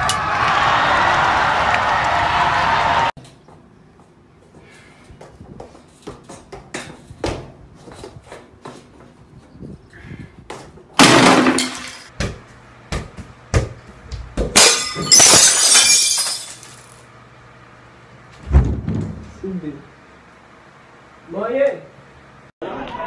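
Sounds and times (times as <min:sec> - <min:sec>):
crash of something breaking: 0:11.0 - 0:12.1
football being kicked: 0:12.1 - 0:14.6
glass shattering and tinkling: 0:14.6 - 0:17.0.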